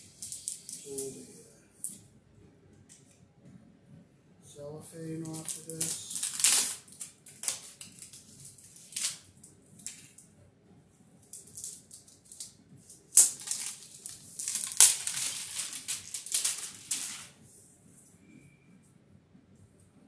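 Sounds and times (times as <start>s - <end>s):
plastic wrap crinkling: 0.0s - 1.1s, 5.0s - 10.2s, 11.3s - 17.4s
plastic film snapping: 0.1s - 1.1s, 5.2s - 10.3s, 11.3s - 17.4s.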